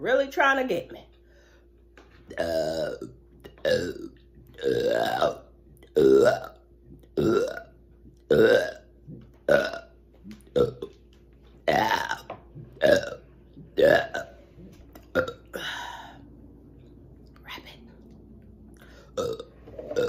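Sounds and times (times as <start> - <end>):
woman burping: 2.3 - 6.6, 7.2 - 7.7, 8.3 - 8.9, 9.5 - 9.9, 11.7 - 13.2, 13.8 - 14.3, 15.0 - 16.1, 19.2 - 20.0.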